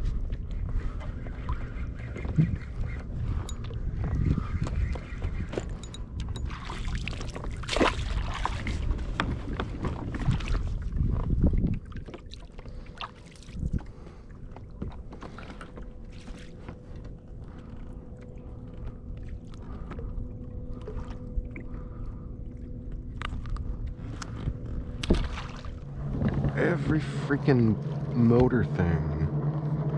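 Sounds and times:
wind on microphone: 0:00.0 - 0:14.2
motorboat engine humming: 0:00.0 - 0:29.9
clicks from handling fish tackle: 0:23.1 - 0:24.4.

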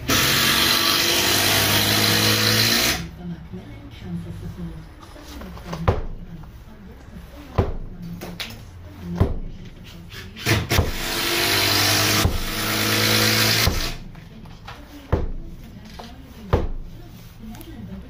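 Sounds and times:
loud steady mechanical noise: 0:00.0 - 0:05.0
hammer striking brickwork: 0:10.4 - 0:14.0.

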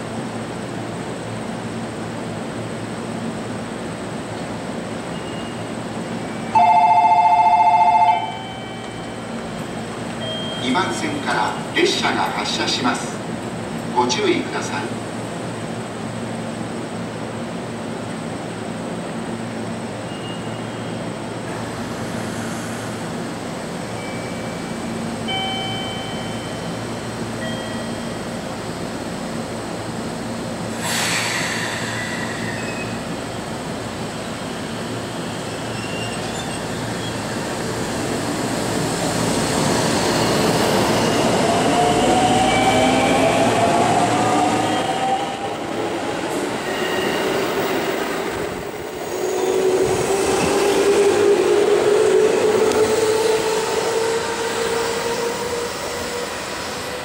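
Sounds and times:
rising train whine: 0:00.0 - 0:57.0
air hiss: 0:30.7 - 0:33.1
wheel or brake squeals: 0:32.0 - 0:33.0, 0:35.6 - 0:37.3.

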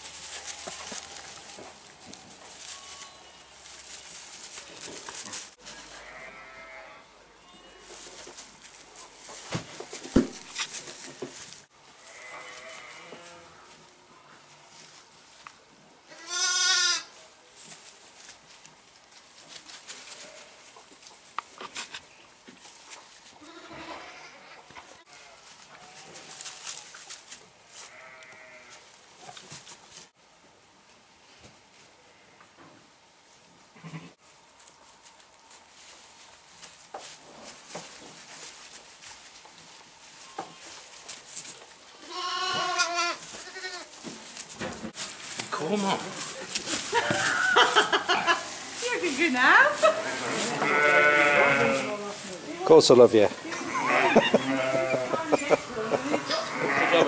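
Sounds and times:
lamb bleating: 0:05.9 - 0:07.9, 0:12.1 - 0:13.5, 0:16.1 - 0:17.1, 0:27.9 - 0:28.8, 0:42.0 - 0:43.9, 0:49.9 - 0:52.0, 0:53.5 - 0:55.5, 0:56.2 - 0:57.0
light rustling: 0:42.6 - 0:52.6.

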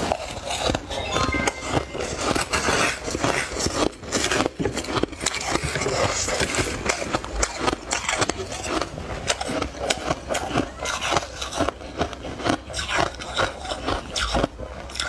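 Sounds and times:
spoon scraping crushed ice: 0:02.0 - 0:11.7.

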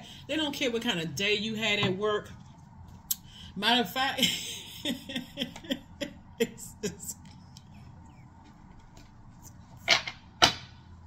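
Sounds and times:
woman speaking: 0:00.0 - 0:02.4, 0:03.5 - 0:07.3.

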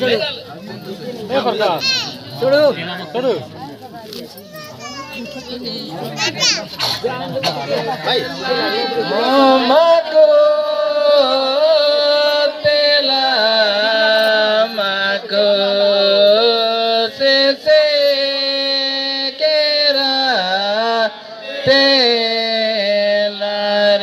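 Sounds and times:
person singing chant-like melody: 0:08.2 - 0:24.0.

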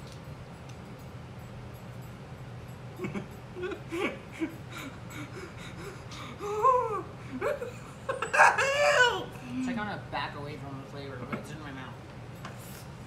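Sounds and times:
low steady hum: 0:00.0 - 0:13.0
wheezing laughter: 0:03.0 - 0:09.3.

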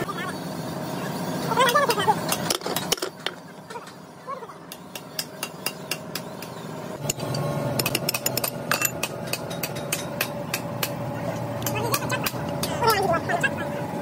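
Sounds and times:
low engine hum: 0:06.1 - 0:14.0
metal tools clinking on wheel hub: 0:07.0 - 0:10.7.

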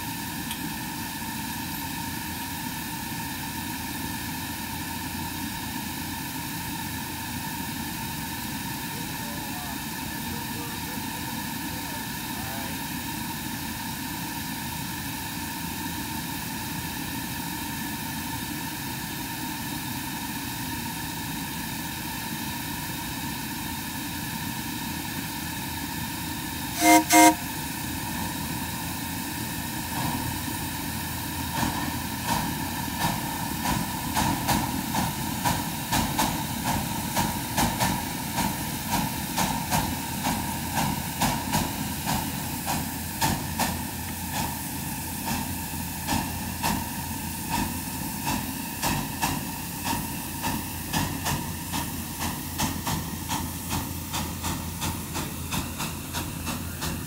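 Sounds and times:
steam locomotive hissing: 0:00.0 - 0:57.0
locomotive exhaust beats: 0:26.6 - 0:57.0
steam whistle toots: 0:26.7 - 0:27.7.

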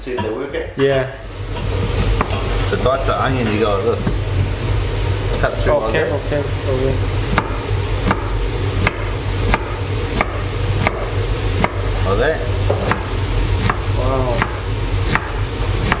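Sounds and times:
knife chopping on wooden board: 0:02.0 - 0:02.5, 0:07.3 - 0:12.0, 0:12.6 - 0:16.0.

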